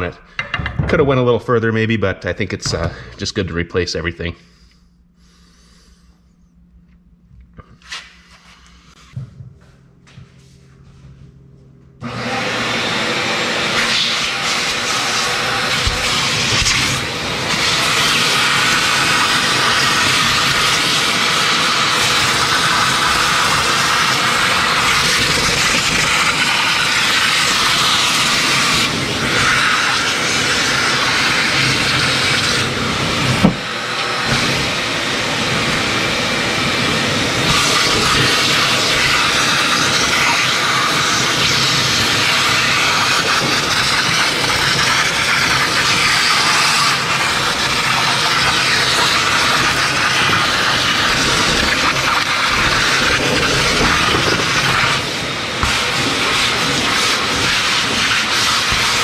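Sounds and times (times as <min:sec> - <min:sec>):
shop vacuum sucking debris: 0:12.0 - 0:59.0.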